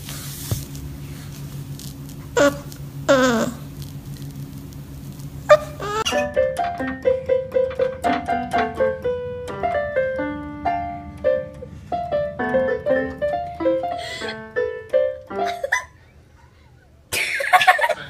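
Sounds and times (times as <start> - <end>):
electronic keyboard piano tune: 6.0 - 15.8.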